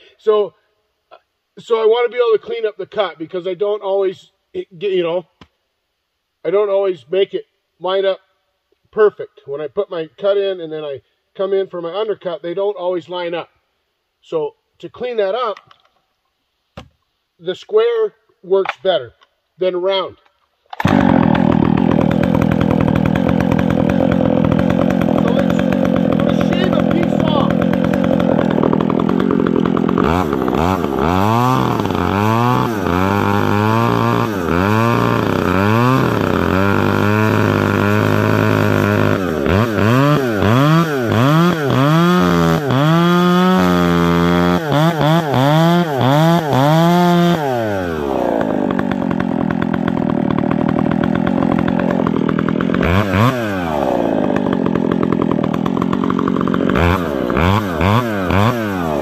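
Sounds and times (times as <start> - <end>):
chainsaw revving: 20.7 - 59.0.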